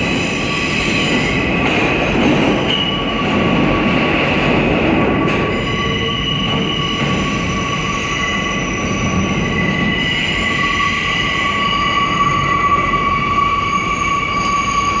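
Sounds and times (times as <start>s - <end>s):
train wheels rumbling on track: 0.0s - 15.0s
high wheel squeal: 5.4s - 15.0s.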